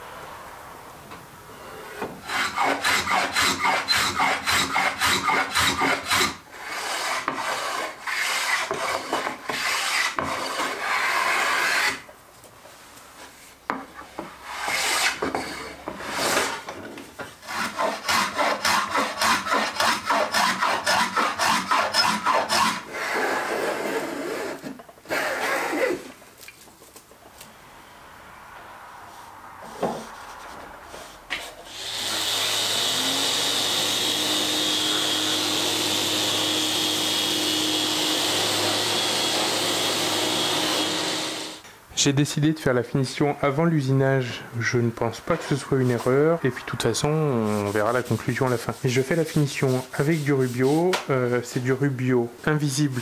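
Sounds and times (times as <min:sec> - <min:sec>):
sanding wood by hand: 0:02.2 - 0:12.0, 0:17.4 - 0:24.5, 0:47.3 - 0:51.6, 0:52.5 - 0:53.0.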